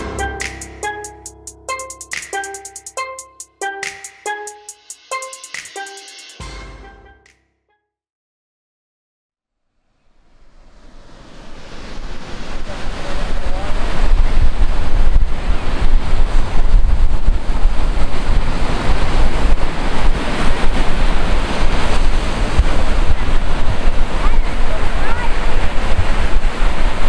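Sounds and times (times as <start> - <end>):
ocean surf: 0.0 - 3.0, 3.6 - 6.8, 10.4 - 27.0
wind noise on microphone: 11.1 - 27.0.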